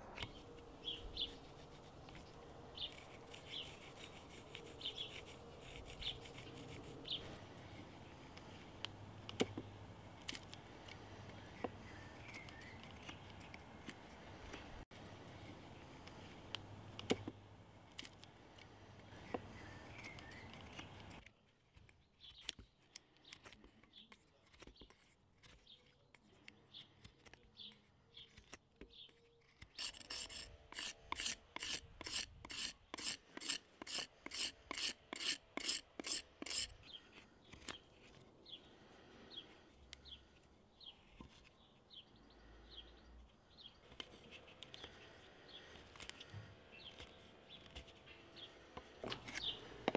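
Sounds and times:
knife scraping wooden handle: 1.0s - 8.6s, 29.2s - 38.2s.

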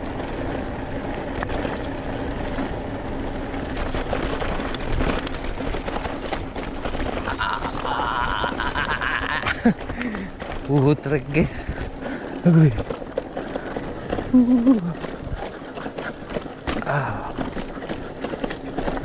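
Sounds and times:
wind buffeting microphone: 0.0s - 19.0s
bike knocks and rattles: 3.5s - 19.0s.

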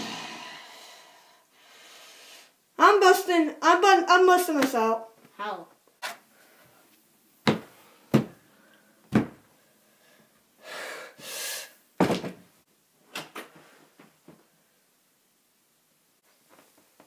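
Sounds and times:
heavy thumps on door: 7.5s - 8.4s.

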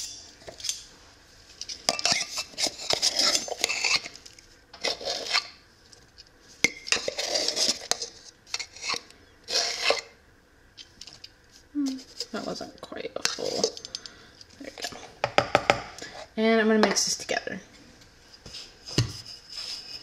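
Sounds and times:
metal spoon scraping in can: 1.9s - 4.2s, 4.8s - 5.6s, 6.8s - 10.1s.

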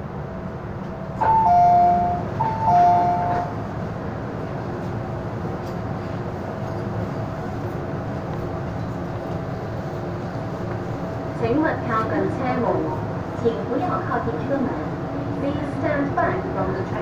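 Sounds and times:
train running noise: 0.0s - 17.0s
two-note ding-dong chime: 1.2s - 3.5s.

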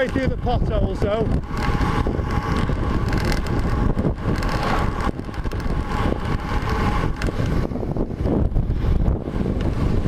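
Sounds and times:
tyres rumbling on bumpy road: 0.0s - 10.0s
wind buffeting microphone: 0.0s - 10.0s.

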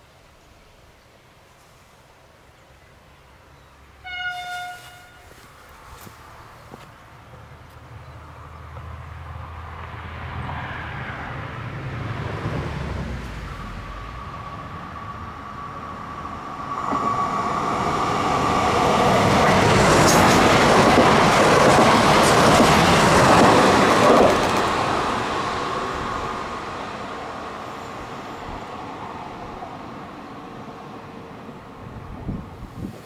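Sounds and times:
train wheels rushing on rail: 8.6s - 33.0s.

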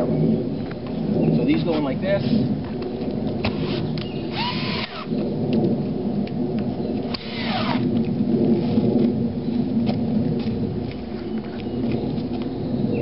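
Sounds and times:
cordless drill into wood: 3.4s - 5.1s, 7.1s - 7.8s.

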